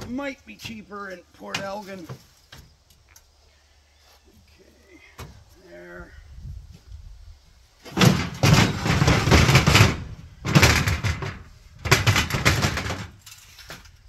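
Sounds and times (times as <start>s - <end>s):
metal ramp scraping and rattling: 7.8s - 14.0s.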